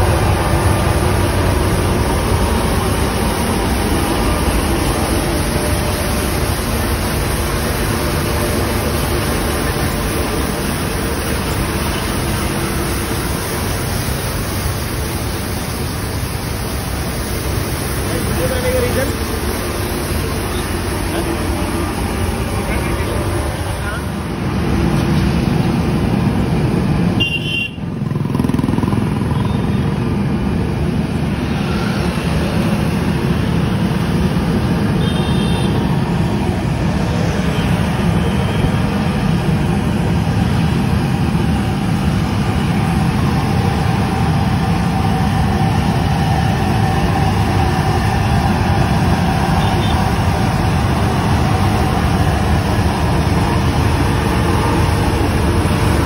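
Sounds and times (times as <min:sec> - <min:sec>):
passing road traffic: 0:00.0 - 0:56.0
road sweeper truck droning: 0:00.0 - 0:56.0
short vehicle horn toots: 0:27.2 - 0:27.8, 0:35.0 - 0:35.8.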